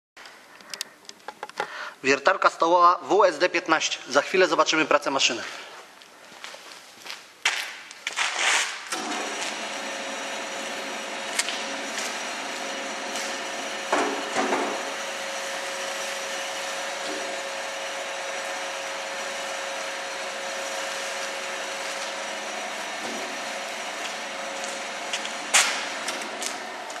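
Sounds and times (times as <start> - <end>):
bench drill motor humming: 9.0 - 27.0.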